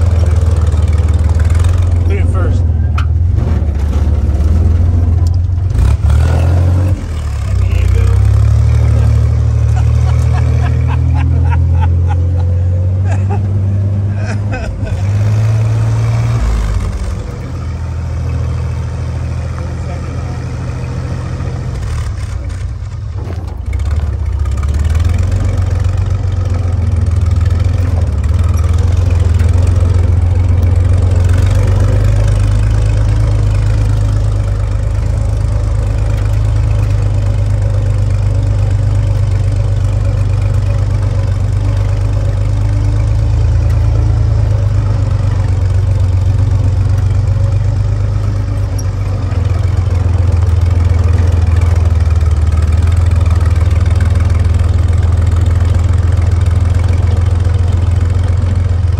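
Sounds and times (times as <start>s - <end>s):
jeep engine running: 0.0s - 58.9s.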